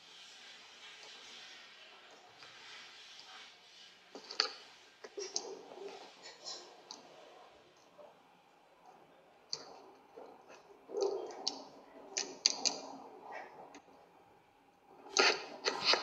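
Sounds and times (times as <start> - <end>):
faint hiss: 0.0 - 8.0.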